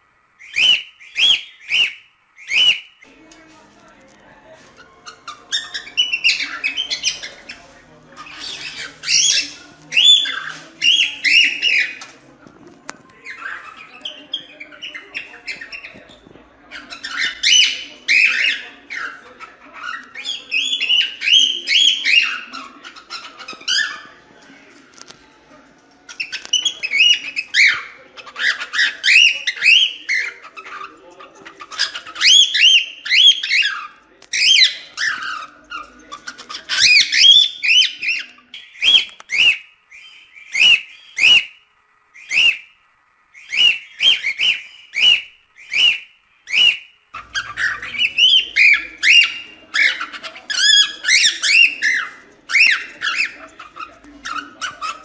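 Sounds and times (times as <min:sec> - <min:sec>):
cockatiel chirping and whistling: 0:00.4 - 0:03.0, 0:43.4 - 0:53.4.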